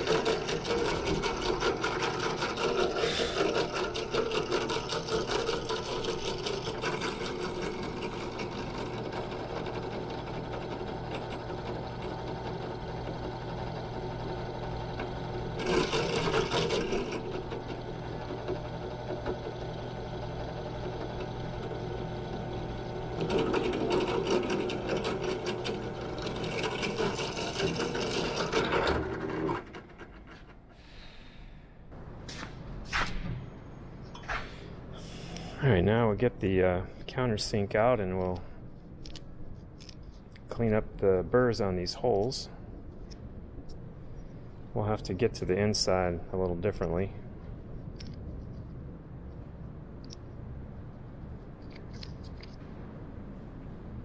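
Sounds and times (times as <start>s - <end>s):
drill bit cutting metal: 0.0s - 29.9s
drill press humming: 0.0s - 32.2s.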